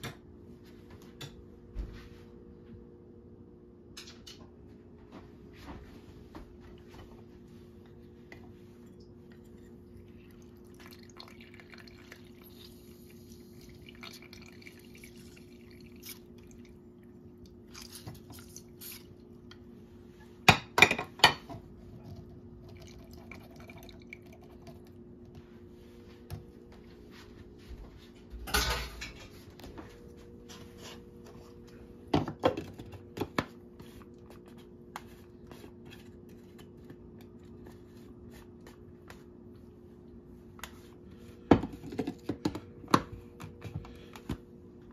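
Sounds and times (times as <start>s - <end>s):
steady low hum: 0.0s - 44.9s
dishes clattering: 28.4s - 29.3s.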